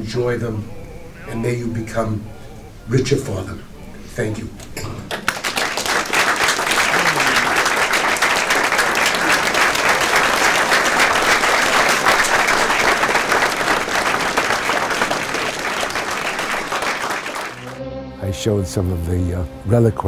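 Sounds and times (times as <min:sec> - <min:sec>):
audience applauding: 0:05.1 - 0:17.8.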